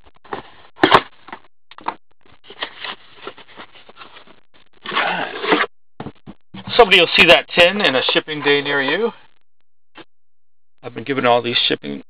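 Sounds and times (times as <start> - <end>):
card box handling clicks and rustles: 1.8 - 4.2.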